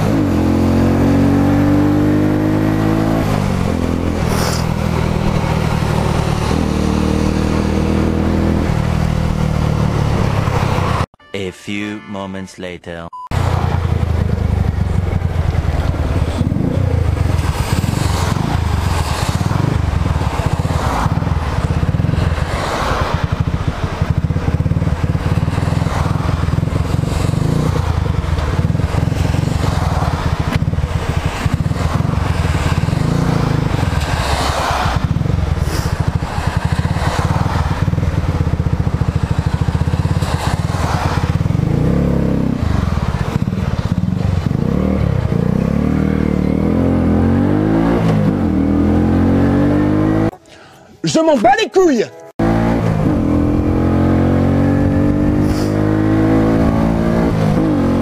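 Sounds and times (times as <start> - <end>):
motorcycle engine running: 13.3 - 50.4, 52.4 - 58.0.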